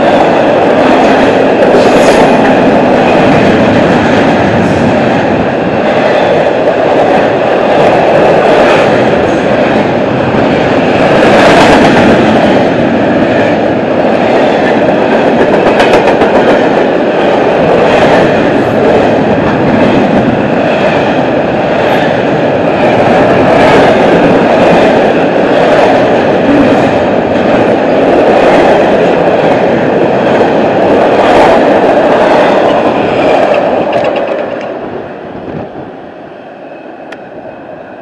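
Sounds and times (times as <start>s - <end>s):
freight train wheels rumbling: 0.0s - 38.0s.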